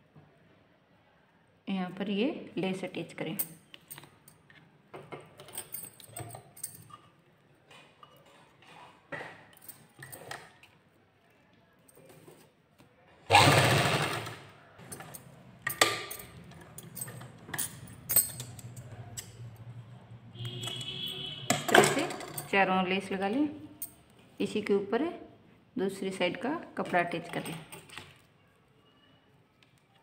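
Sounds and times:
sewing machine stitching: 0:13.3 - 0:15.1.

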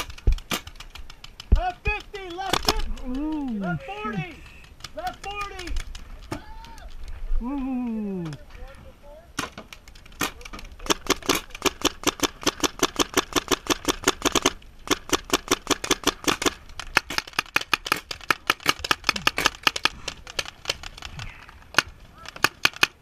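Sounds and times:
paintball marker firing shots: 0:00.0 - 0:06.4, 0:09.4 - 0:21.1.

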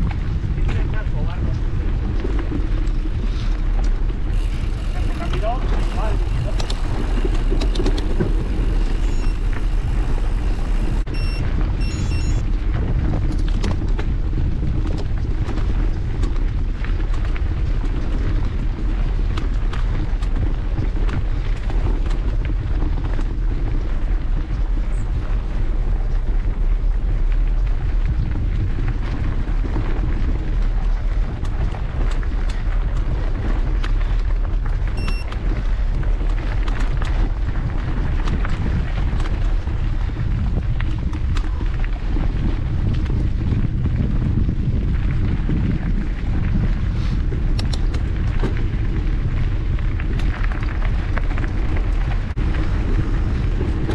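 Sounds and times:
bike tyres rattling over stones: 0:00.0 - 0:53.9
wind buffeting microphone: 0:00.0 - 0:53.9
electronic beep: 0:09.0 - 0:09.5, 0:11.1 - 0:12.4, 0:35.0 - 0:35.3.

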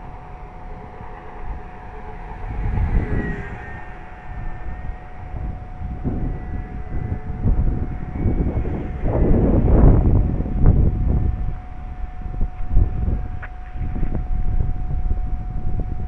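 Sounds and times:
distant model plane motor whine: 0:00.0 - 0:16.0
wind buffeting the microphone: 0:00.0 - 0:16.0.

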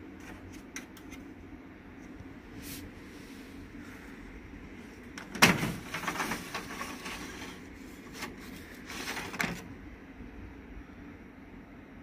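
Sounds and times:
unit scraping and rattling: 0:05.2 - 0:09.7.

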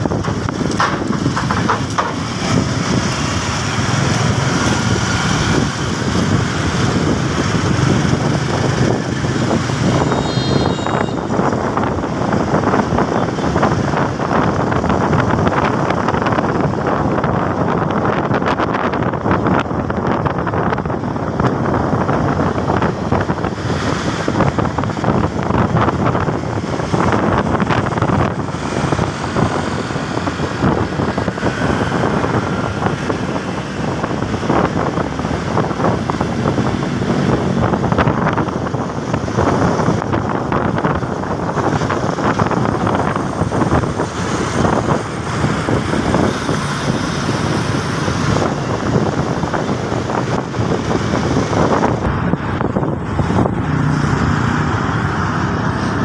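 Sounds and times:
motorcycle engine running: 0:00.0 - 0:18.1
road traffic: 0:00.0 - 0:56.0
wind noise on microphone: 0:00.0 - 0:56.0.

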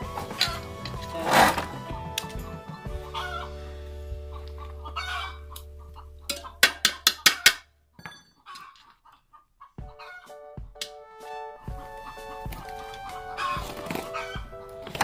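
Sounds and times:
chickens clucking: 0:00.0 - 0:03.6, 0:04.3 - 0:07.6, 0:08.4 - 0:10.4, 0:11.9 - 0:15.0
background music low chord: 0:00.0 - 0:06.6, 0:09.8 - 0:15.0.

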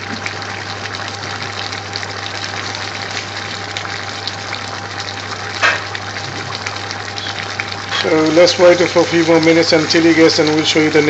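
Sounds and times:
pot boiling and bubbling: 0:00.0 - 0:11.0.

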